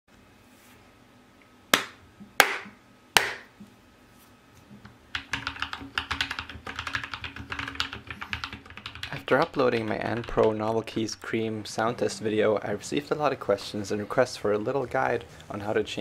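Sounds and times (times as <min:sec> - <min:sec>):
typing on mechanical keyboard: 0:05.1 - 0:10.6.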